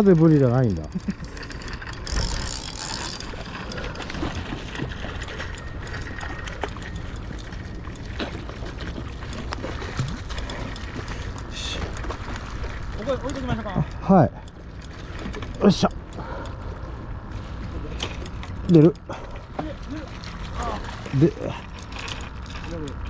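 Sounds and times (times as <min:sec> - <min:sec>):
fish splashing in water: 0:19.2 - 0:23.0.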